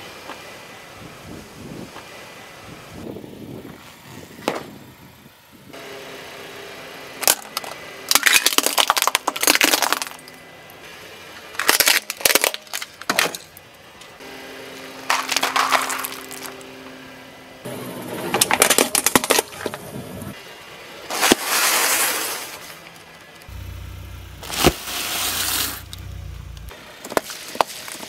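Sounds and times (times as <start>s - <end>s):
tyre crushing brittle objects: 7.2s - 10.4s, 11.5s - 13.6s, 15.0s - 16.7s, 18.1s - 19.8s, 27.0s - 28.0s.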